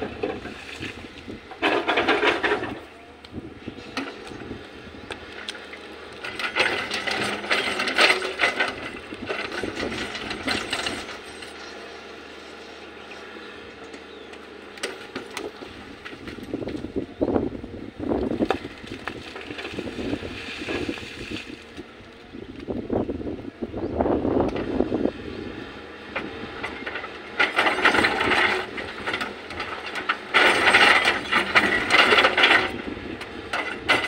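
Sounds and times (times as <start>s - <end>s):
excavator bucket clanking and scraping: 0.0s - 4.6s, 5.3s - 11.8s, 14.7s - 17.4s, 18.0s - 22.8s, 26.0s - 34.0s
excavator engine running: 0.0s - 34.0s.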